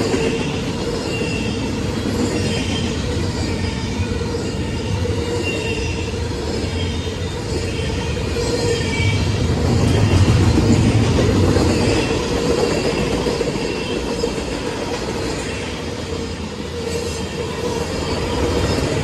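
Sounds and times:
high wheel squeal: 0:01.0 - 0:11.0, 0:15.2 - 0:19.0.

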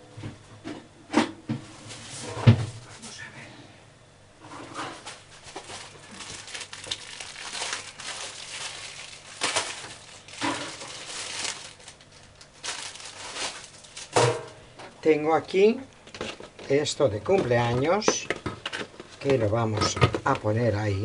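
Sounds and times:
plastic packaging rustling: 0:04.7 - 0:14.4.

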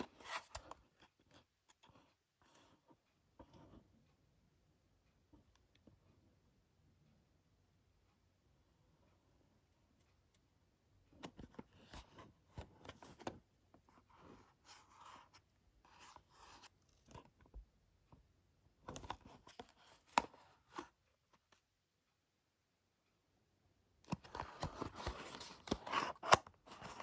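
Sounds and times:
packaging rustling and scraping: 0:24.1 - 0:27.0.

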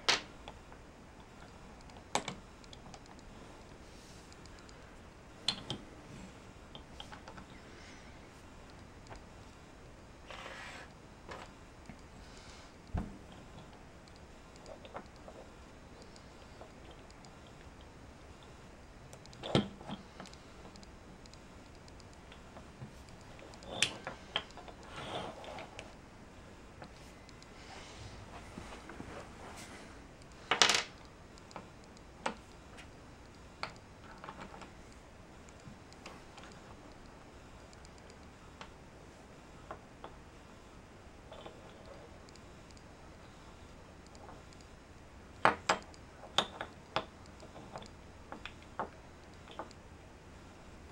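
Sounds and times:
wooden puzzle pieces clicking: 0:30.2 - 0:37.1.

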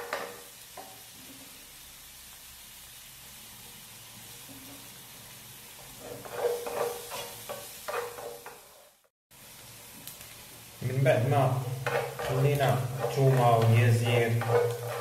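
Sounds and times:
wooden spatula scraping a pan: 0:00.0 - 0:01.6, 0:05.8 - 0:09.1, 0:11.1 - 0:15.0
onion and garlic sizzling in oil: 0:00.0 - 0:15.0.

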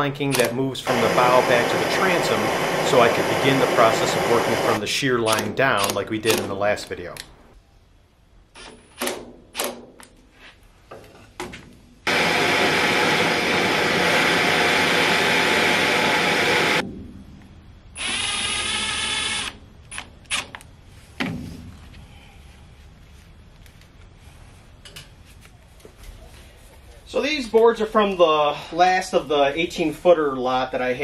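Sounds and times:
gas torch hissing: 0:00.9 - 0:04.8, 0:12.1 - 0:16.8
impact driver whirring: 0:12.1 - 0:16.8, 0:18.0 - 0:20.4.

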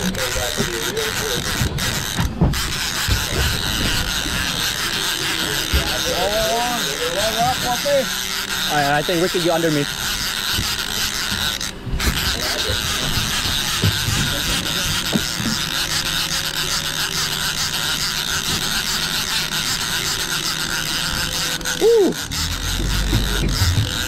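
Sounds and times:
fishing reel being cranked: 0:00.0 - 0:24.0.

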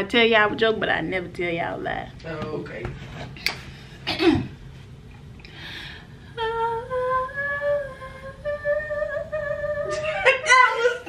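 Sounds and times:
woman singing long notes: 0:06.4 - 0:11.0.

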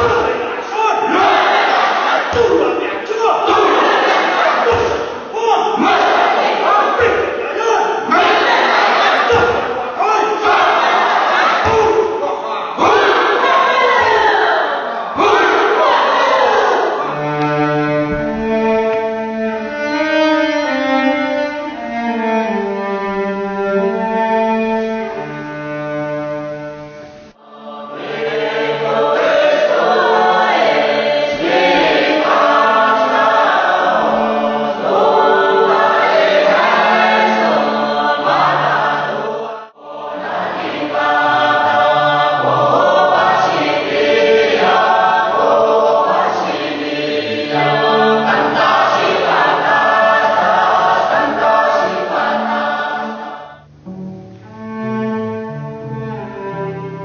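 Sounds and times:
chorus singing: 0:00.0 - 0:20.8, 0:27.3 - 0:53.6
cello sustained bowed notes: 0:16.8 - 0:27.4, 0:51.9 - 0:57.0.

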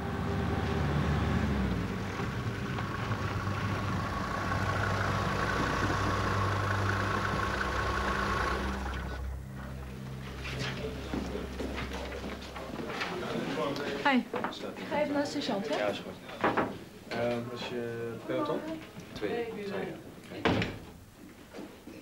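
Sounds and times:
jeep engine running: 0:00.0 - 0:12.9.

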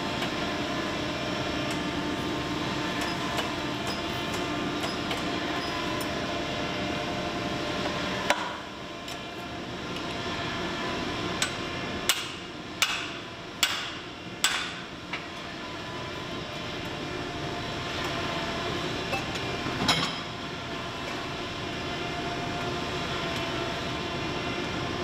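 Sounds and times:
steady machine hum: 0:00.0 - 0:25.0.

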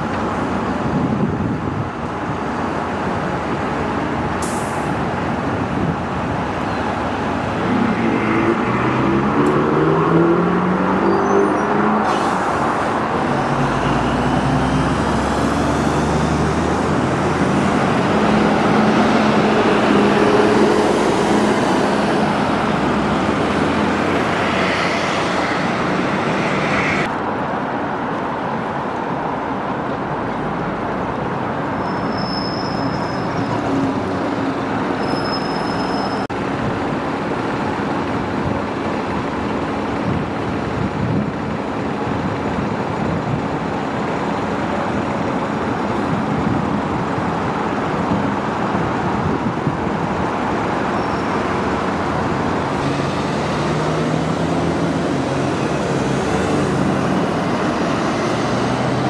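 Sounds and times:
buses driving past: 0:00.0 - 0:59.0
city traffic: 0:00.0 - 0:59.0
high squeaks: 0:31.8 - 0:36.3.

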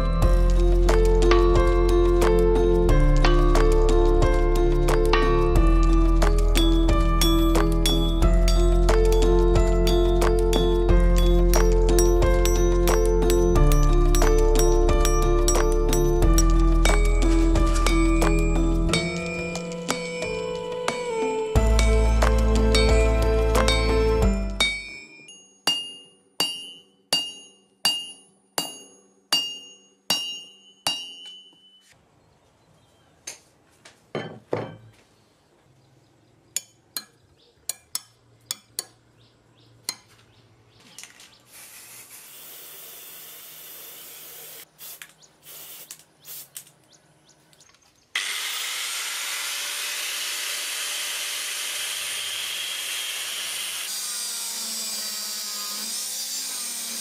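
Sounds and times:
hammer striking steel on anvil: 0:21.8 - 0:31.8, 0:36.6 - 0:39.0
angle grinder cutting steel: 0:41.5 - 0:44.7, 0:48.2 - 0:57.0.

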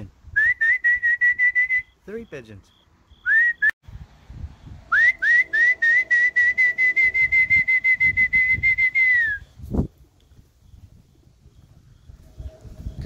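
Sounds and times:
person whistling: 0:00.4 - 0:01.9, 0:03.3 - 0:03.8, 0:04.9 - 0:09.5
low whoosh: 0:03.9 - 0:08.8.

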